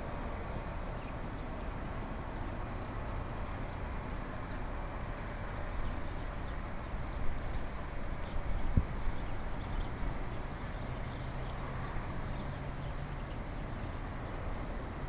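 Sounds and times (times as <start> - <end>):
distant turboprop airliner drone: 0.0 - 15.0
wind noise on microphone: 5.8 - 10.6.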